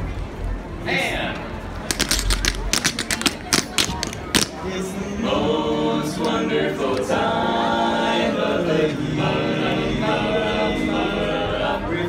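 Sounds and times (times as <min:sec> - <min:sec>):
men singing a cappella in harmony: 0:04.6 - 0:12.0.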